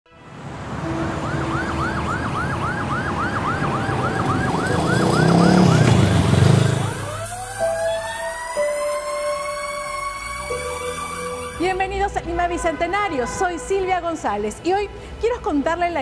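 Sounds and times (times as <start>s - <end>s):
siren rising wail: 0.3s - 12.0s
low vehicle rumble: 0.4s - 7.8s
siren yelping fast: 0.9s - 11.7s.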